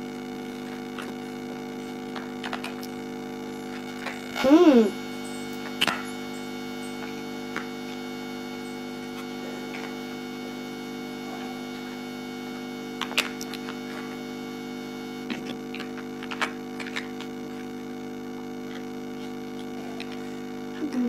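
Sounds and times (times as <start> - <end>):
steady electrical hum: 0.0 - 21.0.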